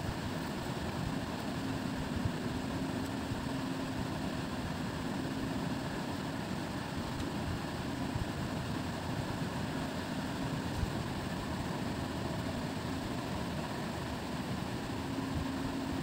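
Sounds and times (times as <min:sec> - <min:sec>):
mechanical motor hum: 0:00.0 - 0:16.0.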